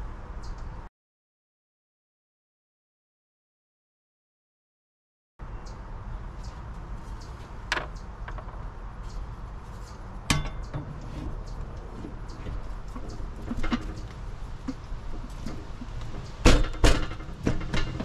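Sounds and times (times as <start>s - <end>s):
metal cover clinking: 10.3s - 11.0s.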